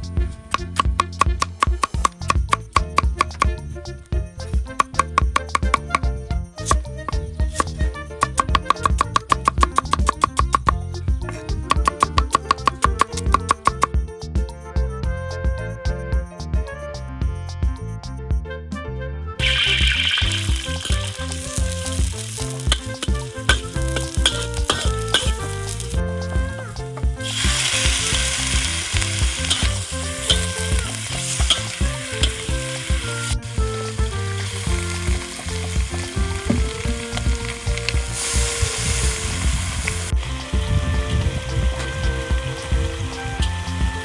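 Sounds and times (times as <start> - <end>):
metal ladle scraping wok: 19.4 - 25.9, 27.2 - 33.4
meat sizzling in hot oil: 19.4 - 26.0, 27.2 - 40.4.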